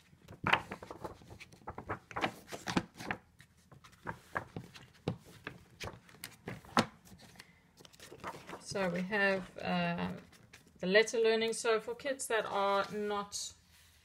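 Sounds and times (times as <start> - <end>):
paper pages turning quickly: 0.2 - 10.8.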